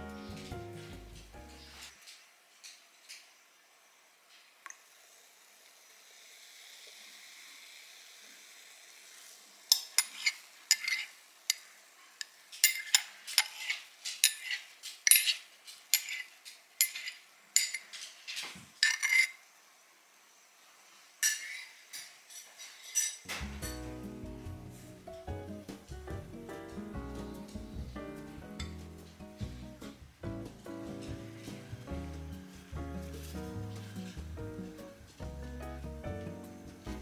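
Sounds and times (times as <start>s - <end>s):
spoon tapping and scraping crockery: 9.7s - 19.4s, 21.2s - 23.8s.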